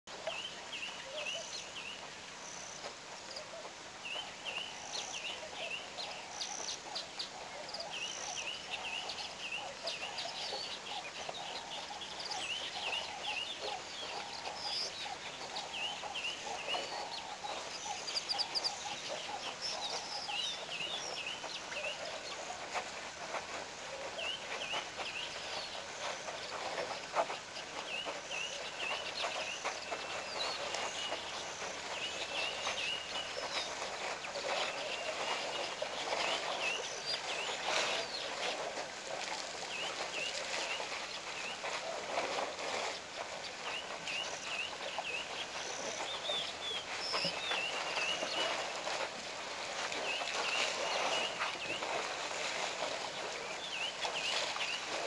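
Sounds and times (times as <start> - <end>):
birds chattering calls: 0.1 - 49.0
birds chirping: 0.1 - 55.0.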